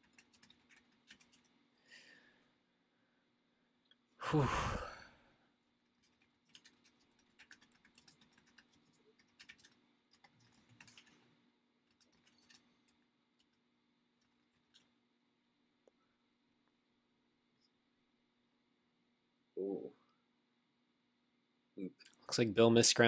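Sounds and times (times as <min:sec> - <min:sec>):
breathy sigh: 0:04.2 - 0:05.3.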